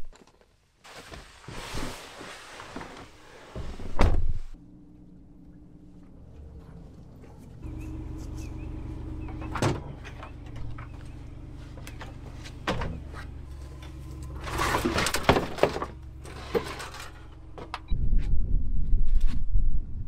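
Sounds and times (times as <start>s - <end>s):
truck idling hum: 4.6s - 17.9s.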